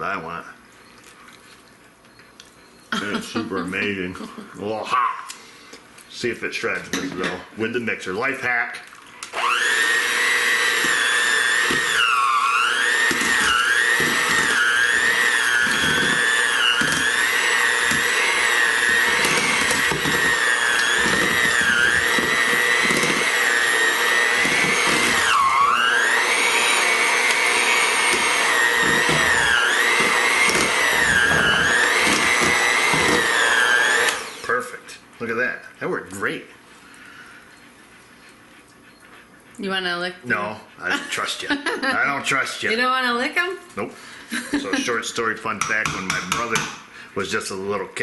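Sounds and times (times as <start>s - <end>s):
electric mixer motor whining: 9.2s - 34.6s
beaters knocking in metal bowl: 45.5s - 46.8s.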